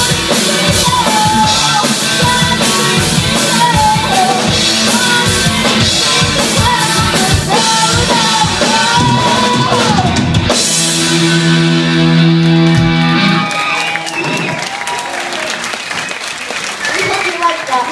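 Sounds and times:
woman singing: 0:00.0 - 0:10.2
live rock band playing: 0:00.0 - 0:16.7.

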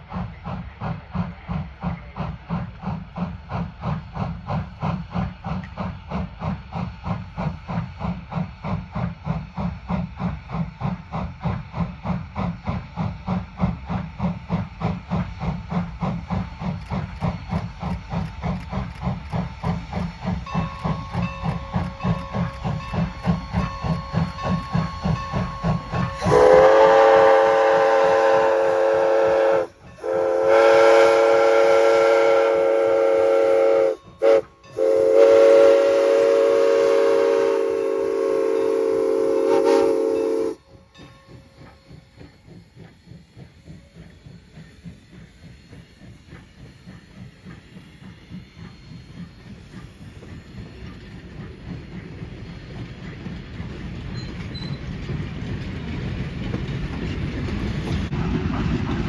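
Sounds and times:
train wheels clicking over rail joints: 0:00.0 - 0:59.0
steam whistle blasts: 0:23.2 - 0:40.6.

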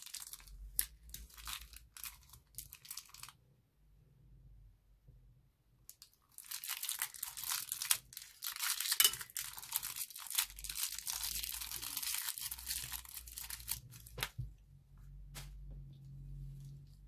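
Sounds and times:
plastic piping bag crinkling: 0:00.0 - 0:03.4, 0:05.9 - 0:14.4.

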